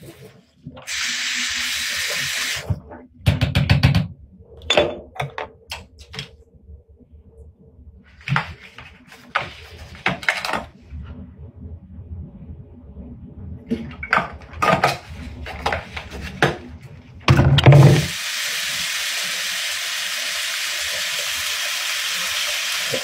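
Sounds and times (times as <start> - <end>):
water running: 0.8 - 2.7, 17.6 - 23.0
items clicking and clattering: 8.2 - 10.7.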